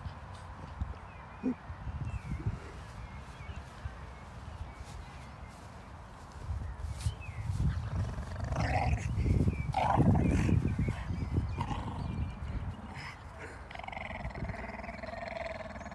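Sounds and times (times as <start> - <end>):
dogs growling in play: 7.7 - 15.9.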